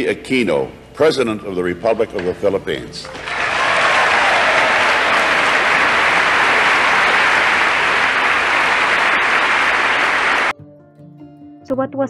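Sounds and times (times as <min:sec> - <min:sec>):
large crowd applauding: 0:03.1 - 0:10.5.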